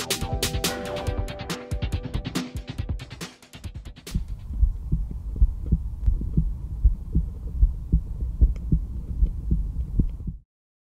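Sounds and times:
heartbeat through stethoscope: 4.1 - 10.4.

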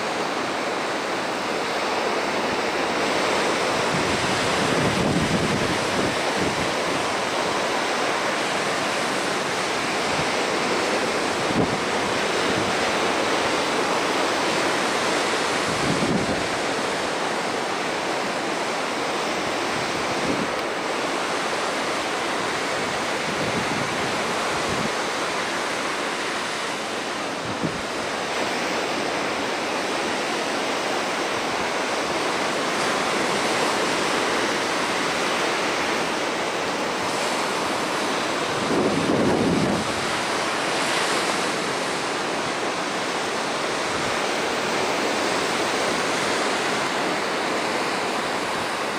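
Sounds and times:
ocean waves breaking: 0.0 - 48.9
wind bumps on microphone: 3.8 - 7.0, 15.6 - 16.6, 38.4 - 40.3.

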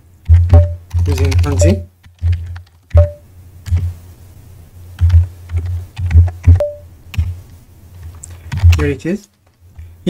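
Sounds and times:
typing on computer keyboard: 0.2 - 3.1, 5.0 - 7.3, 8.5 - 8.9.

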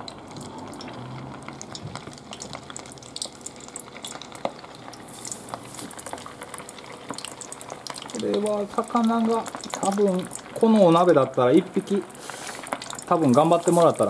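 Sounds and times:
crackling pops: 0.0 - 10.8
fish deep-frying in hot oil: 0.0 - 14.0.

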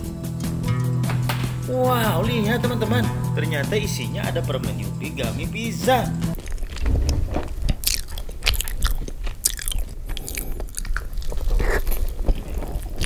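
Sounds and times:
crunches and mouth clicks: 6.3 - 13.0
person chewing pizza: 6.4 - 13.0.

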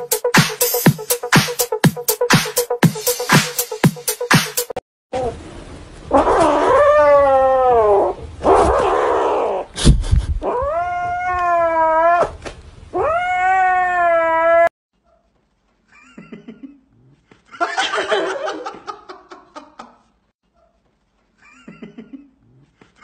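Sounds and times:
kitten yowling: 6.1 - 9.7, 10.4 - 14.7.

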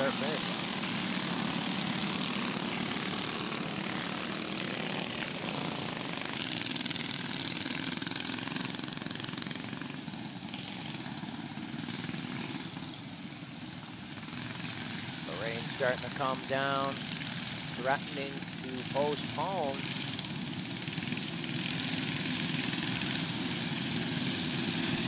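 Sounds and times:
go-kart engines running: 0.0 - 25.0.

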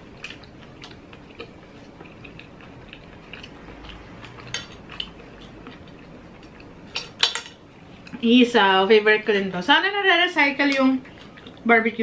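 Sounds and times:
quiet chewing: 0.0 - 8.2, 11.0 - 11.7.

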